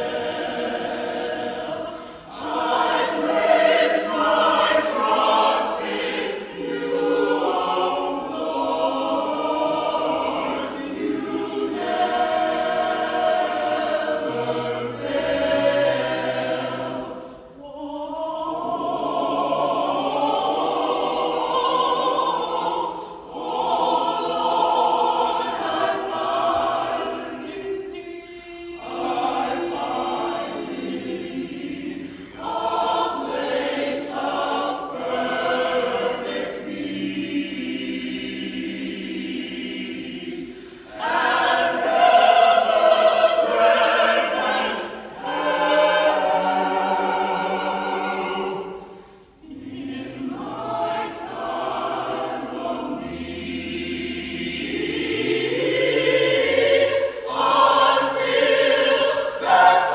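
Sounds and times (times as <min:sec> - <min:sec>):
mixed choir singing in harmony: 0:00.0 - 0:59.9.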